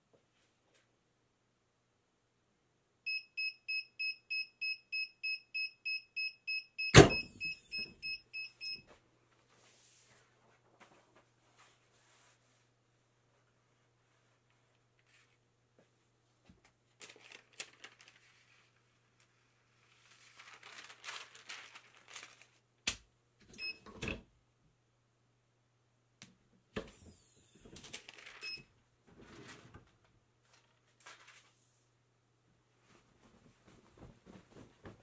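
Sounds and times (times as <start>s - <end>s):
paper rustling: 9.3s - 12.7s, 16.5s - 22.7s, 27.6s - 28.4s, 29.1s - 31.8s, 32.8s - 35.0s.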